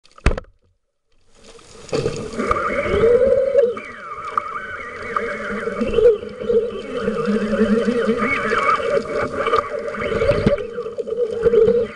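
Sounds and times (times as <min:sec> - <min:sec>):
muffled underwater water rush: 0:01.2 - 0:11.9
wavering tones: 0:02.4 - 0:11.9.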